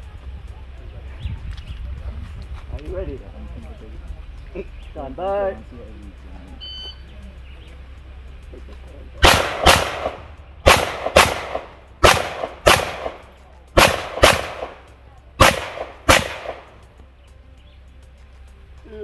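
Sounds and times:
gunshots with echo: 9.2s - 16.8s.

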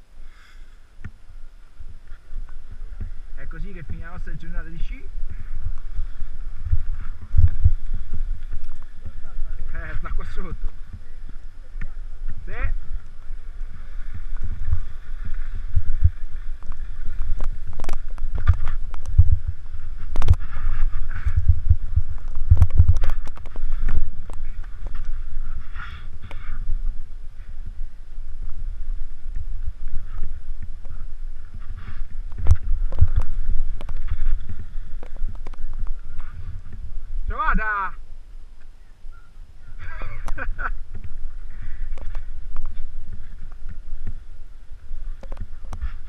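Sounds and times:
wind buffeting microphone: 0.9s - 46.0s.

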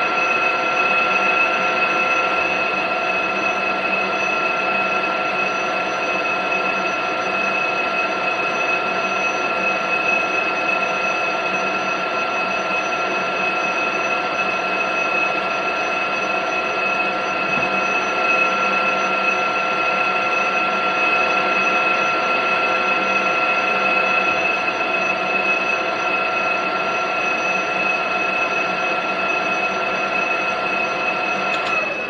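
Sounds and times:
metal lathe whining: 0.0s - 32.0s.

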